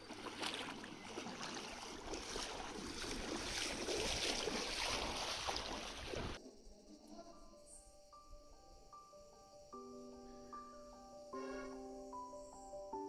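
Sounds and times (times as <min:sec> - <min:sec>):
feet wading through water: 0:00.0 - 0:06.4.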